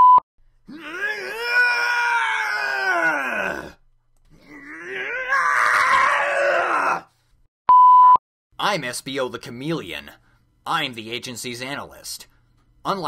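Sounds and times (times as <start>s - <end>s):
cartoon-style screams: 0.7s - 3.8s, 4.5s - 7.1s.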